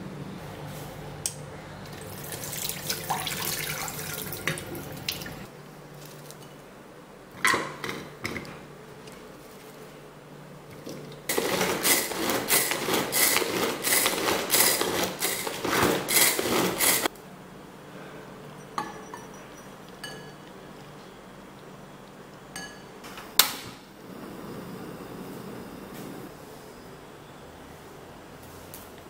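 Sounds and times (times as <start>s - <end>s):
food chopper blade rattling: 11.3s - 17.1s
spoon clinking against bowl: 18.6s - 20.5s, 22.5s - 22.9s.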